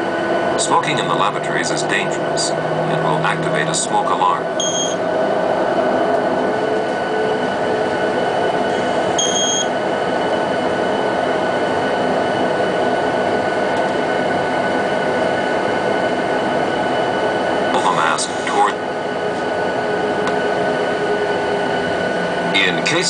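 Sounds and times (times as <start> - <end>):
airliner cabin rumble and hiss: 0.0 - 23.0
short high beep: 4.6 - 5.0, 9.2 - 9.7.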